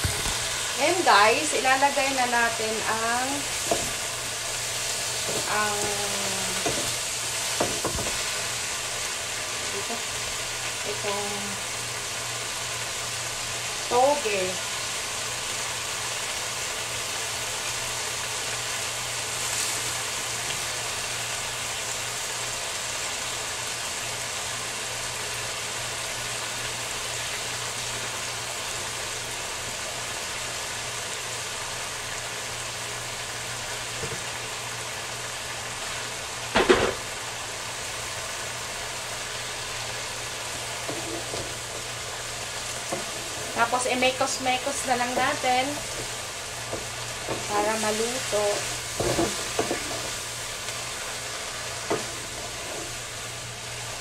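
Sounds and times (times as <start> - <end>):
bean sprouts sizzling in a pan: 0.0 - 54.0.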